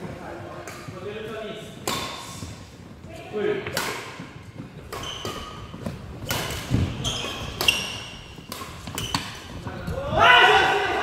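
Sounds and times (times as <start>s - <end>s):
rackets striking shuttlecock: 1.8s - 2.2s, 4.9s - 9.4s
shoes squeaking on wooden floor: 4.4s - 9.7s.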